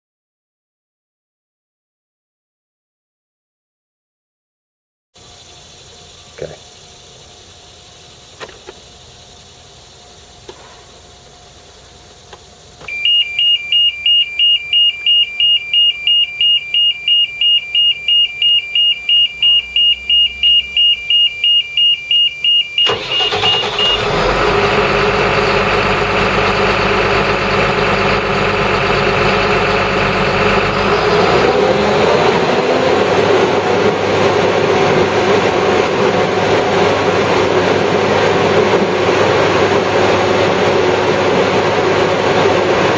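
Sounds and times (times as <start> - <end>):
warning alarm beeping rapidly: 12.9 - 31.5
machine engine running: 22.8 - 42.9.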